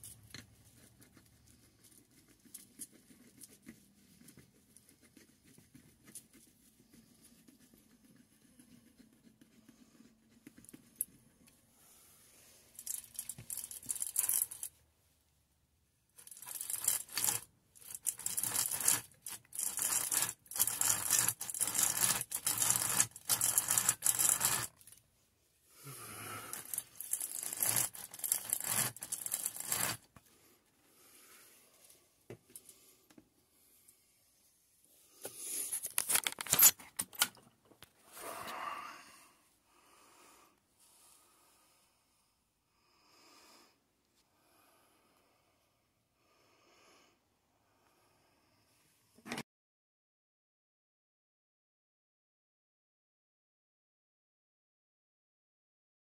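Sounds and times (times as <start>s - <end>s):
hand drill rasping through wood: 12.8s - 14.7s, 16.2s - 24.9s, 25.9s - 30.1s.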